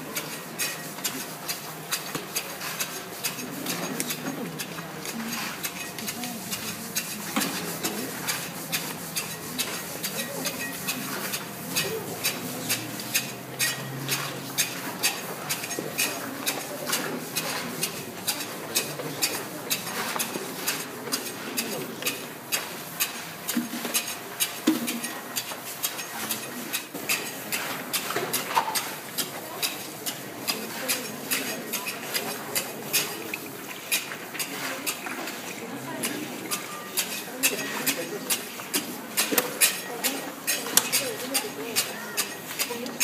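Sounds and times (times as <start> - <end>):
shovels scraping salt: 0.1 - 42.9.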